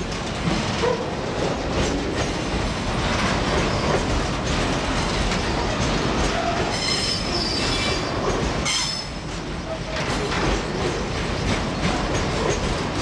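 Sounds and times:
wheels rumbling on rail: 0.0s - 13.0s
high-pitched wheel squeal: 6.4s - 9.2s.

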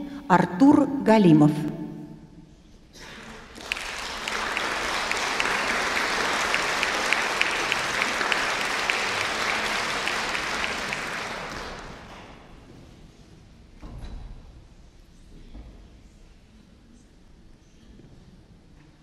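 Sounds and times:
audience applauding: 3.0s - 12.4s.

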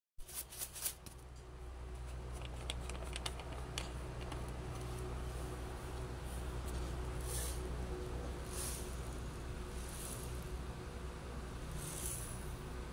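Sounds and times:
steady low hum: 0.2s - 12.9s
plastic screw cap clicking: 2.4s - 4.4s.

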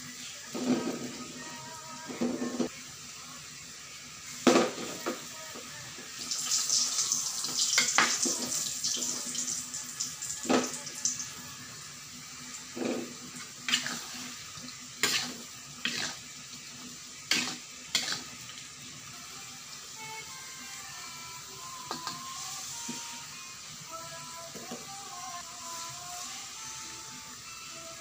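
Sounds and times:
tofu sizzling in a wok: 0.0s - 28.0s
metal spatula scraping a wok: 12.7s - 16.3s, 17.2s - 18.4s.

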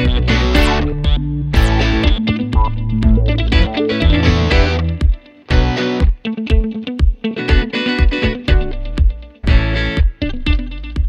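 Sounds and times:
guitar-led instrumental music: 0.0s - 11.0s.

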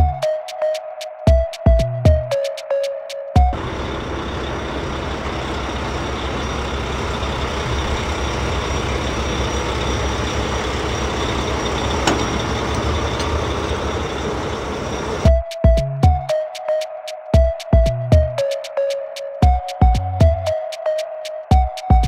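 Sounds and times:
truck engine rumbling: 3.4s - 15.3s.

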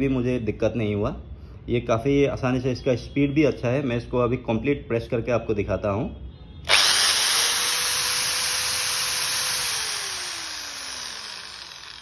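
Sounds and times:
hammer drill motor whine: 6.6s - 12.0s.

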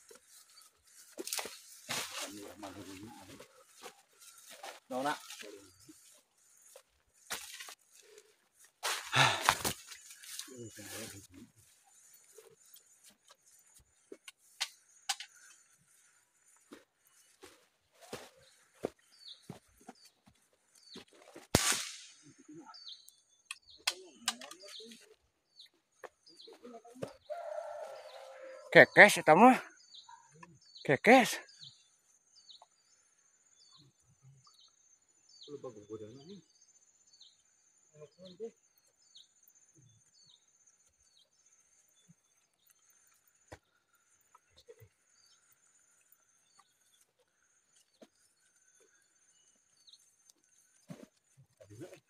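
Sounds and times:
bird chirping: 0.0s - 21.2s, 22.2s - 29.0s, 29.7s - 52.0s
sharp loud crack: 21.6s - 22.2s.

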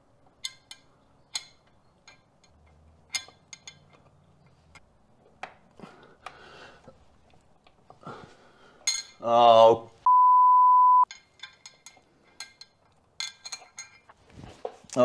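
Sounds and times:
metallic clicks and taps of bolt: 0.3s - 5.6s
soft rustle of handling: 14.0s - 15.0s.

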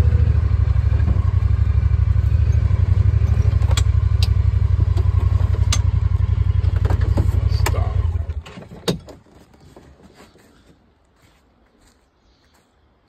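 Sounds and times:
vehicle engine low throb: 0.0s - 8.4s.

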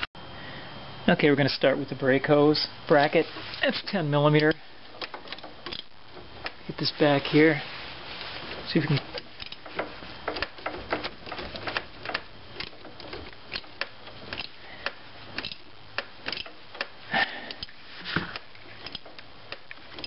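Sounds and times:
wrench clicking on bolt: 4.4s - 6.6s, 9.2s - 20.0s.

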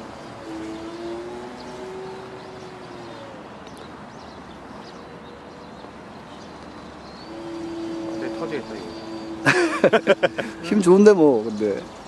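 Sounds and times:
model plane propeller humming: 0.0s - 5.1s, 7.3s - 12.0s
open-air noise: 0.0s - 12.0s.

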